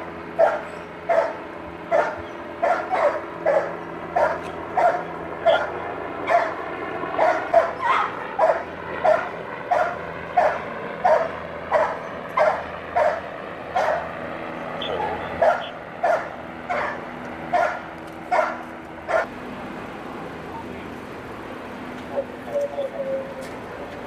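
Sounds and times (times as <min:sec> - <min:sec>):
dog barking: 0:00.4 - 0:06.6, 0:07.2 - 0:14.1, 0:15.0 - 0:19.3.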